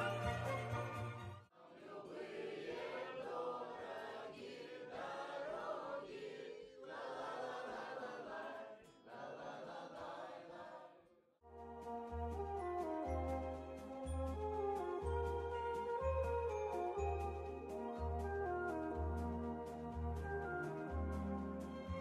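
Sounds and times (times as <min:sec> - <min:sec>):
group of voices singing: 0:01.6 - 0:11.0
instrumental music with deep bass: 0:11.5 - 0:22.0.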